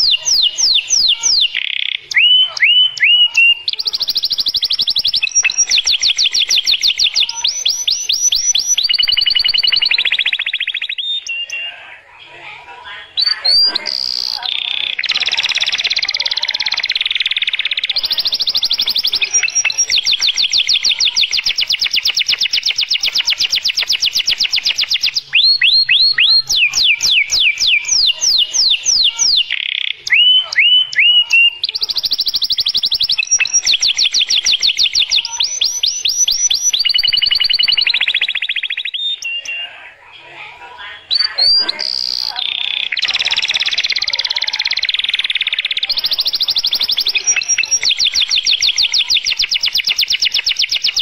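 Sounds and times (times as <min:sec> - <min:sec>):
canary whistled notes: 0:00.0 - 0:11.7
canary singing fast trills: 0:00.0 - 0:51.0.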